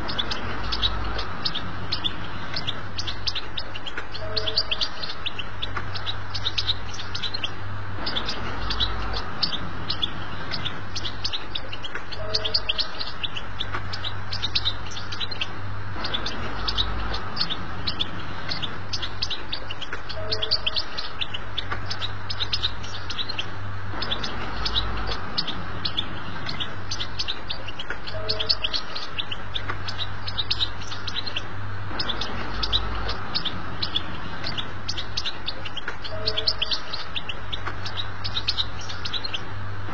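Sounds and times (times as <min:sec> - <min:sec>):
goldfinch twittering song: 0:00.0 - 0:39.6
low steady hum: 0:00.0 - 0:39.9.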